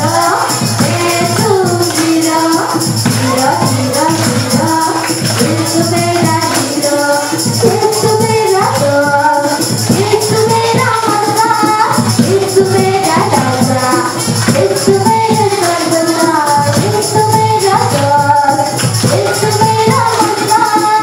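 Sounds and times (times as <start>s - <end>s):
song with singing over beat: 0.0s - 21.0s.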